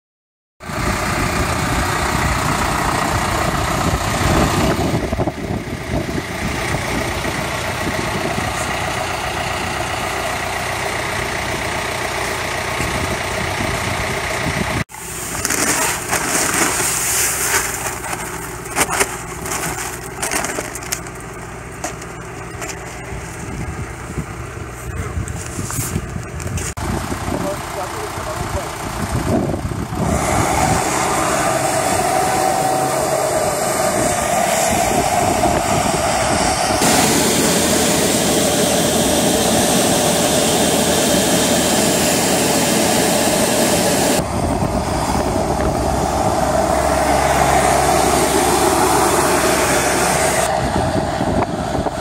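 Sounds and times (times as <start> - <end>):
tractor diesel engine running: 0.6 - 52.0
wind buffeting microphone: 0.8 - 8.8, 23.0 - 27.6, 28.8 - 37.0, 44.1 - 47.4, 48.0 - 52.0.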